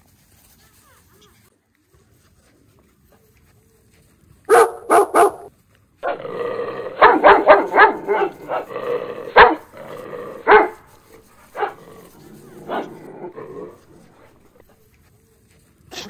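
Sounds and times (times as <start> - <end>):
puppies barking and yipping: 4.5 - 6.2, 6.9 - 14.6
puppies growling: 5.4 - 14.7.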